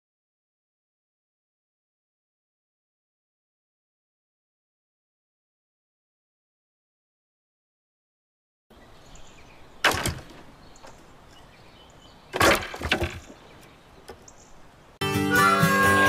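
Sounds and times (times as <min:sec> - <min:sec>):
faint outdoor background: 0:08.7 - 0:16.0
firewood thrown onto woodpile: 0:09.8 - 0:10.5, 0:12.3 - 0:14.2
acoustic guitar music: 0:15.0 - 0:16.0.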